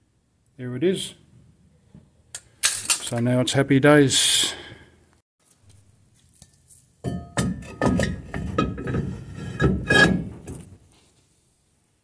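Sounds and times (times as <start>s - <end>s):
metallic knocks and clanks: 7.0s - 10.7s.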